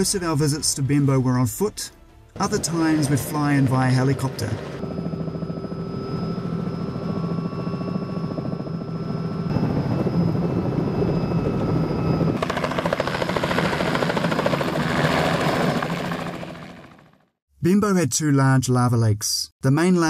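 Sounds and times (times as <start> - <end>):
helicopter rotor and engine: 2.4 - 17.4.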